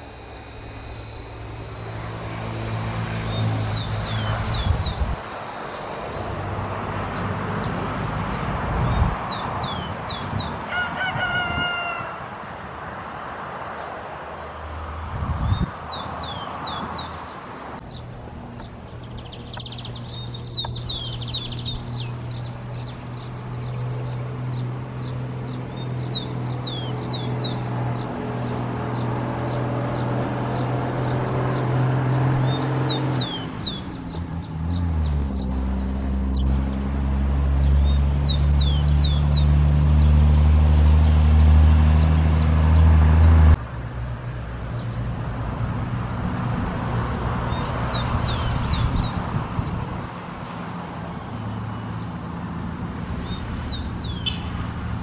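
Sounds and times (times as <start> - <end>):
steady low hum: 0.0 - 4.0
rooster crowing: 10.6 - 12.4
sparrow whistling song: 14.4 - 25.1, 25.8 - 28.0, 32.4 - 34.6, 37.7 - 39.6, 47.5 - 49.7, 53.1 - 55.0.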